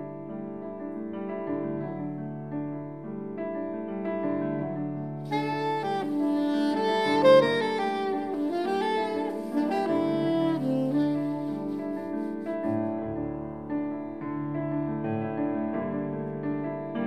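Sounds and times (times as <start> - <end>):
grand piano playing: 0.0 - 17.0
soprano saxophone melody: 5.1 - 13.0.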